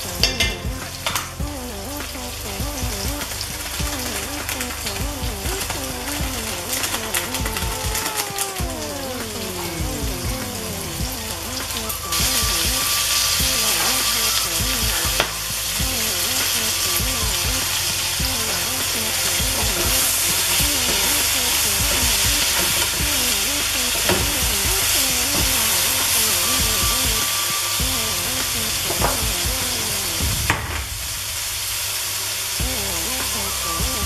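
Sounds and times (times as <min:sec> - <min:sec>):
food sizzling in hot oil: 0:00.0 - 0:34.0.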